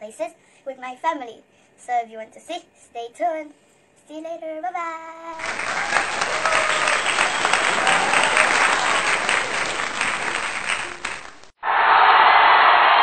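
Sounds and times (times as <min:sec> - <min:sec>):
crowd applause: 0:05.4 - 0:13.0.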